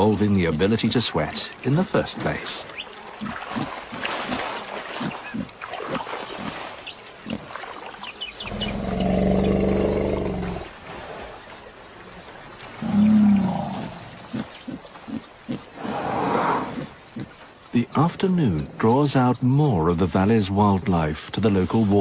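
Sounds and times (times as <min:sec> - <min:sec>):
mud squelching: 0:00.0 - 0:18.0
low growling animal call: 0:08.4 - 0:10.7, 0:12.8 - 0:16.9.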